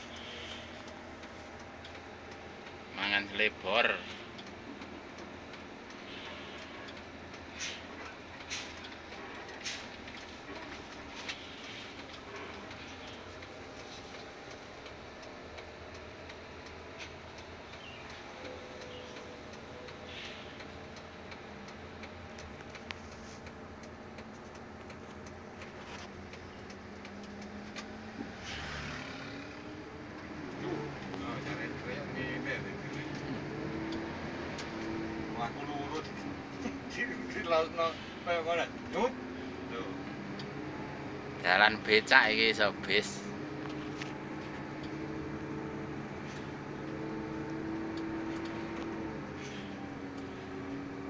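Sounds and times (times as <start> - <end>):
engine and road rumble: 0.0 - 51.0
short hiss: 7.6 - 7.9, 20.1 - 20.6
ticking and clicking rattles: 20.6 - 28.4.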